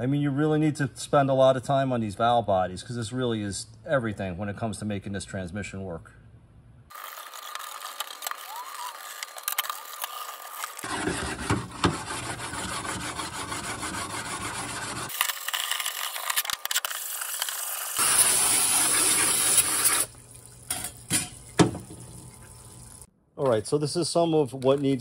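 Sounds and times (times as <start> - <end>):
stone scraping on metal: 10.1 - 15.1
hissing spray: 17.0 - 20.1.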